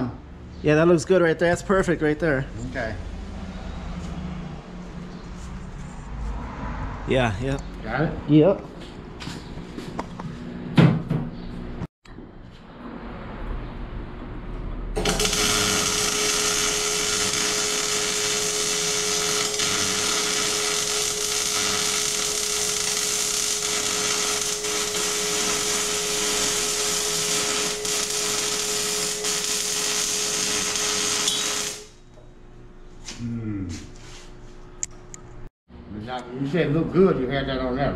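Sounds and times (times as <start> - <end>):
welding arc crackling sizzle: 15.0 - 32.0
welder hum: 15.0 - 32.1.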